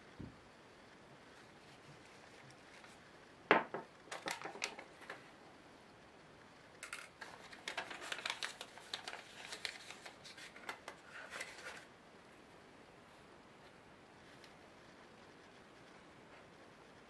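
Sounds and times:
paper rustling: 4.1 - 5.3, 6.8 - 11.9.

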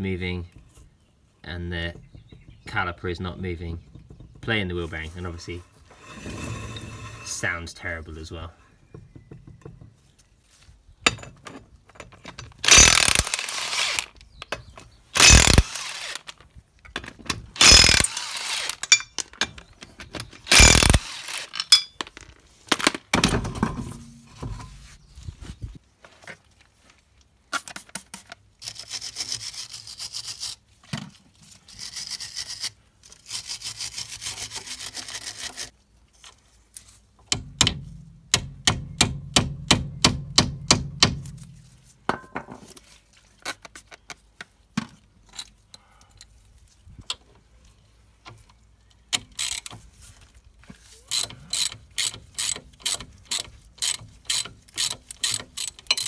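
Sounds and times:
socket ratchet clicking: 12.6 - 13.4, 17.6 - 18.2.

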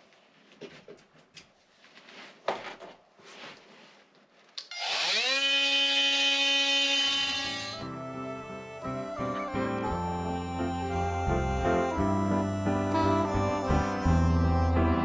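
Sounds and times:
scraping and handling noises: 0.0 - 4.6
oscillating multi-tool buzzing: 4.6 - 8.9.

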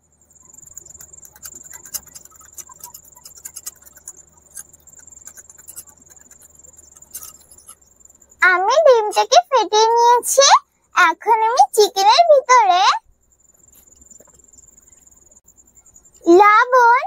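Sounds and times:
spoon clicking and scraping clay bowl: 0.4 - 8.2.

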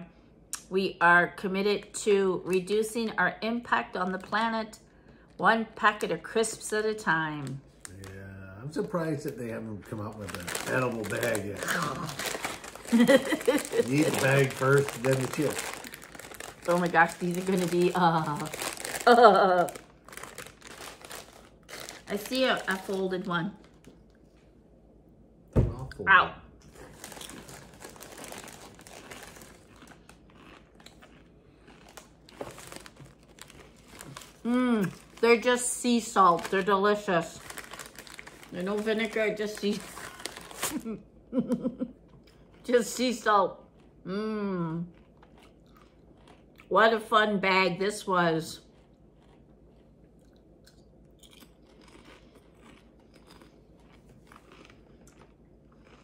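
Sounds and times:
crisp bag crinkling: 9.2 - 24.0, 26.7 - 40.9
crisps being crunched and chewed: 9.2 - 24.0, 26.6 - 40.8, 43.6 - 44.0, 44.8 - 46.7, 48.6 - 56.0.

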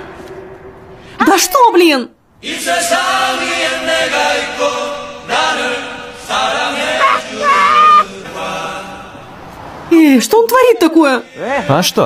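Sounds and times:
man singing: 6.9 - 8.2.

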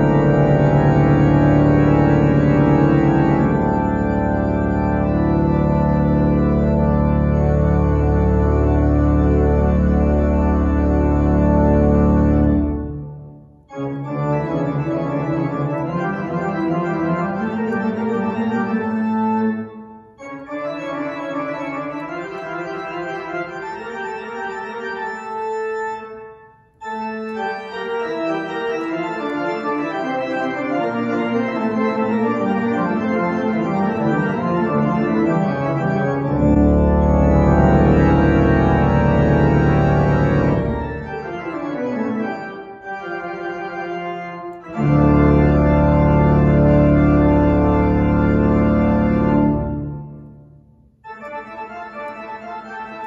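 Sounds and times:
organ playing sustained chords: 0.0 - 53.0.

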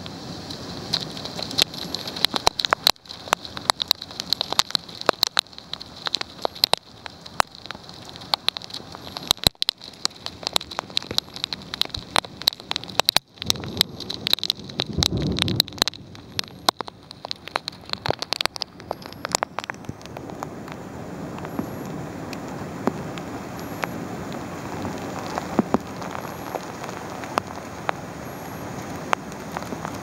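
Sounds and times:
heavy rain and hail: 0.0 - 30.0
low rumble: 13.4 - 16.7.

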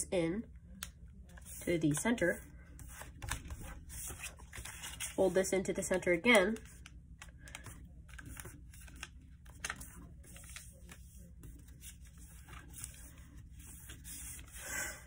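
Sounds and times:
paper being folded: 2.8 - 5.3, 6.5 - 14.7.

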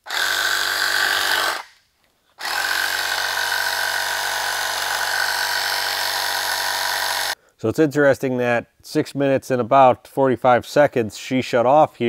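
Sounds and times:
tire inflator compressor running: 0.0 - 1.8, 2.4 - 7.4.

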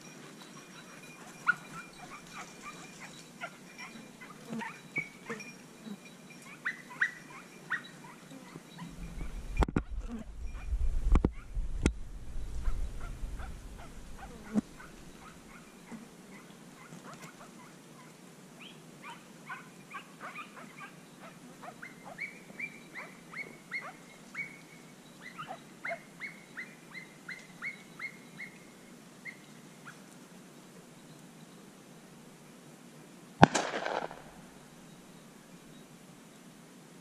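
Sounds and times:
dog yelping: 1.4 - 4.8, 6.5 - 8.9, 12.6 - 15.7, 23.0 - 24.6, 25.3 - 28.5
low rumble of wind or handling: 8.9 - 15.6, 33.4 - 35.0.

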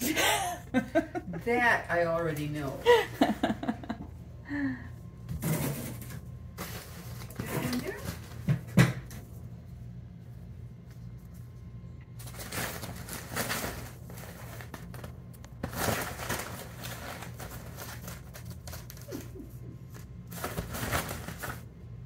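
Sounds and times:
fabric tunnel rustling and crinkling: 12.2 - 19.3, 20.2 - 21.7.

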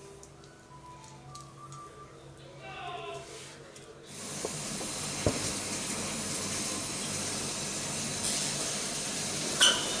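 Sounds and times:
oven hissing: 3.4 - 10.0.

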